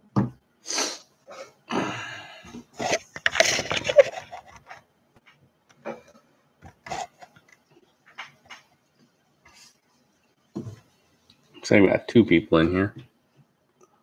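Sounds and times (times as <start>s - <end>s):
camera handling rubbing and scraping: 2.7s - 4.8s, 5.9s - 8.6s.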